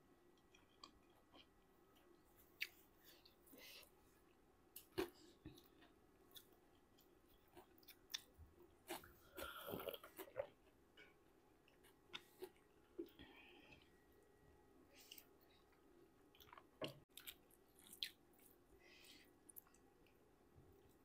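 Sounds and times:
chewing and mouth smacks: 0:15.0 - 0:18.5.

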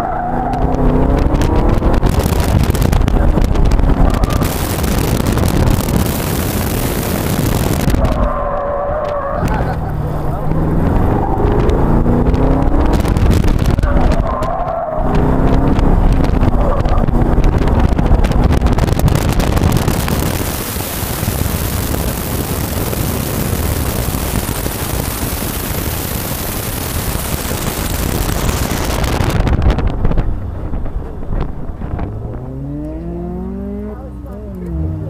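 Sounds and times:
car engine running hard: 0:00.0 - 0:35.0
wind rush: 0:00.3 - 0:32.8.

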